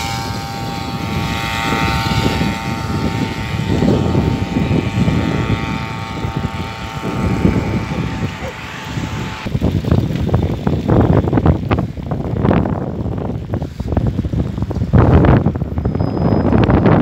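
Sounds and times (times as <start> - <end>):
high-pitched hum: 0.0 - 17.0
wind buffeting microphone: 0.0 - 17.0.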